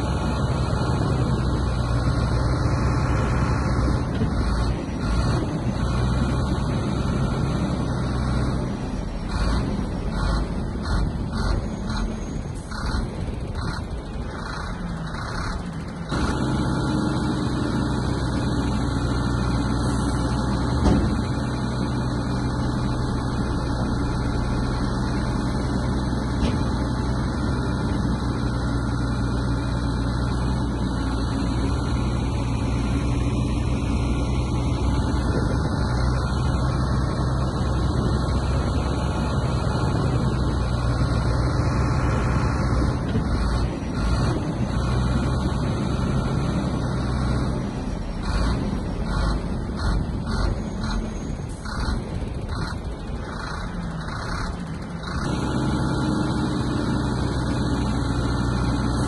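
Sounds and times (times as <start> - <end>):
heavy diesel engine running: 0.0 - 59.0
thump: 20.8 - 21.2.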